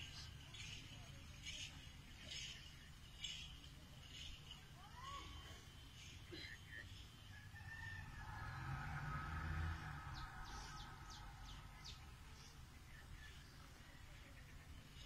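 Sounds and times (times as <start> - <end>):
faint rooster crowing: 7.3 - 11.4.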